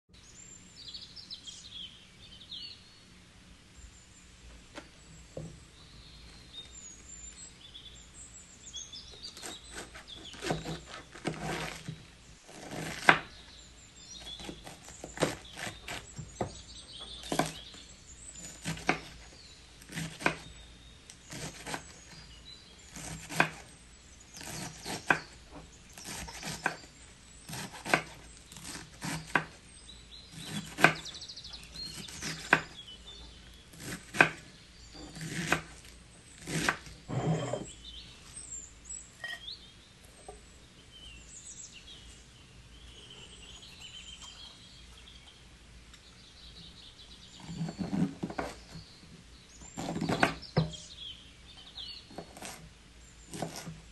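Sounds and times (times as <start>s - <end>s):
knife chopping lettuce on board: 9.4s - 13.3s, 14.3s - 16.5s, 17.2s - 17.6s, 18.4s - 19.2s, 19.9s - 20.5s, 21.3s - 21.9s, 22.9s - 23.7s, 24.4s - 25.3s, 26.0s - 26.8s, 27.5s - 29.6s, 30.3s - 31.1s, 31.9s - 32.8s, 33.7s - 35.8s, 36.4s - 36.9s, 49.8s - 50.8s, 53.3s - 53.8s
faint high chirps: 37.1s - 47.6s.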